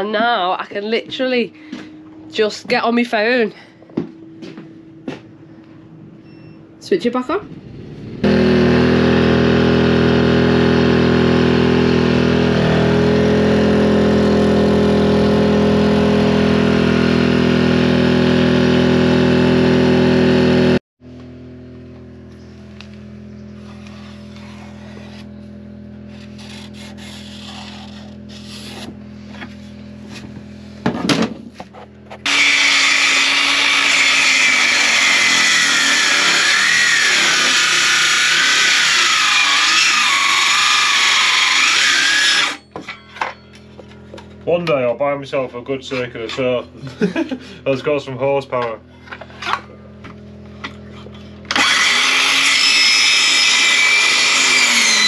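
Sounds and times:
generator engine running: 0.0s - 55.0s
circular saw cutting wood: 8.0s - 20.8s, 23.5s - 30.2s, 32.1s - 43.0s, 50.6s - 55.0s.

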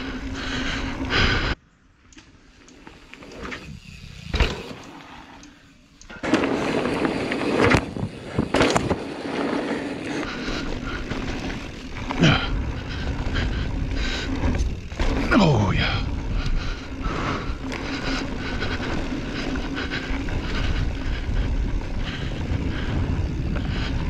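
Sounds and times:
bike knocking and clattering: 6.0s - 24.0s
tyres rolling over dirt: 6.1s - 24.0s.

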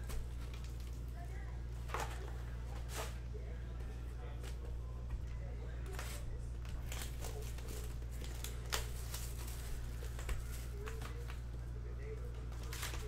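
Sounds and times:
steady low hum: 0.0s - 13.0s
foil wrappers crinkling: 5.8s - 13.0s.

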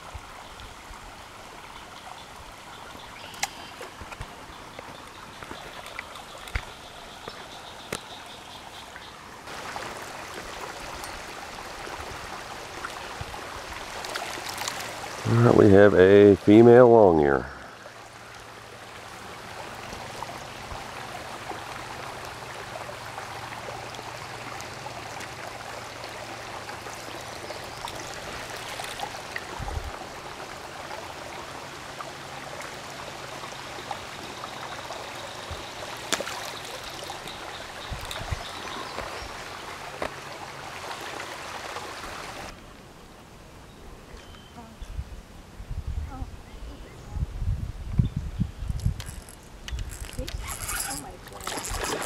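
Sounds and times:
creek water rushing: 0.0s - 43.6s, 48.8s - 52.0s.

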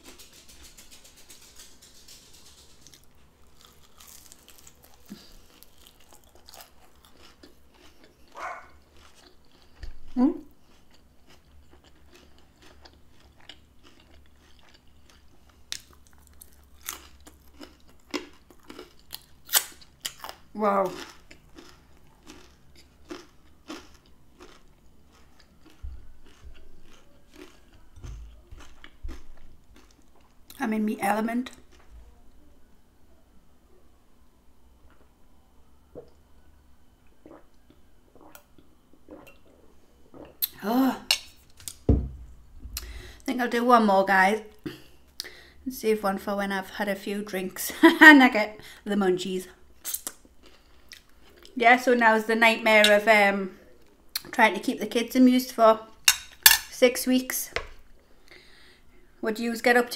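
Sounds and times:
chewing and crunching pastry: 0.0s - 30.6s, 31.4s - 32.4s, 49.5s - 51.6s
low dull thumps: 41.9s - 42.9s.

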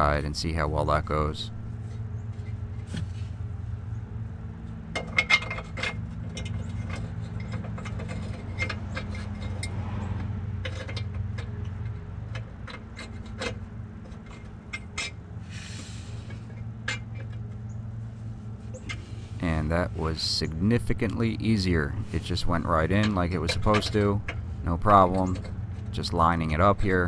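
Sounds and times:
steady low hum: 0.0s - 27.0s
short scrapes: 15.4s - 17.4s, 18.0s - 20.2s.

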